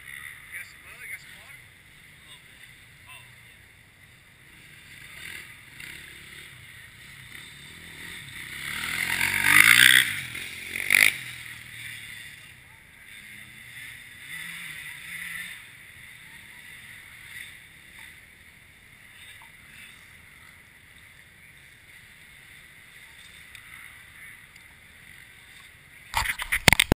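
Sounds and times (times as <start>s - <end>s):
rubbing and knocking on microphone: 26.2s - 27.0s.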